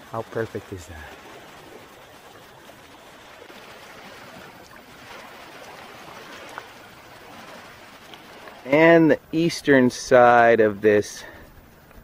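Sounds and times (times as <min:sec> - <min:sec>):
faint paddle splashes: 0:00.0 - 0:08.8
sea water lapping: 0:00.0 - 0:12.0.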